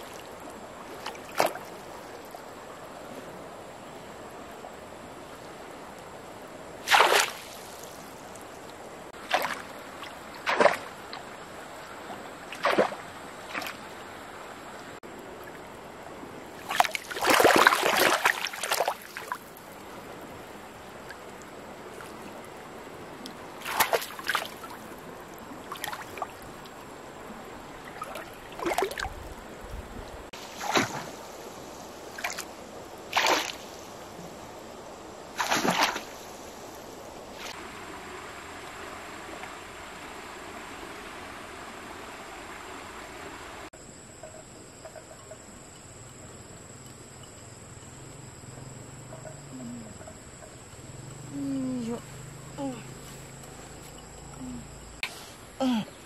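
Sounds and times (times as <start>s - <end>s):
stream rushing: 0.0s - 44.1s
water splashes in shallow water: 0.0s - 56.0s.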